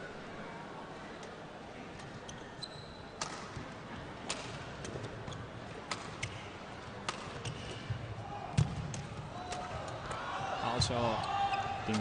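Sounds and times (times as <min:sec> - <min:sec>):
shoe squeak: 0:02.3 - 0:03.2
rackets striking shuttlecock: 0:07.0 - 0:07.6.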